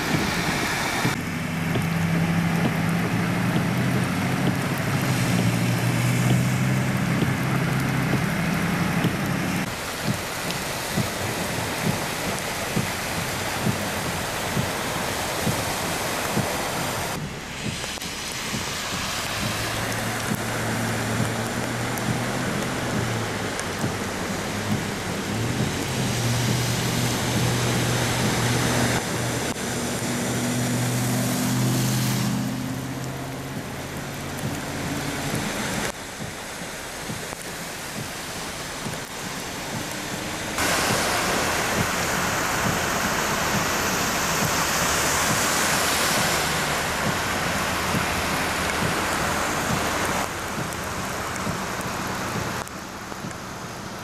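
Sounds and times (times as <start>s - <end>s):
heavy rain falling: 0.0s - 54.0s
tyres splashing through water: 0.0s - 54.0s
vehicle engine humming: 0.0s - 54.0s.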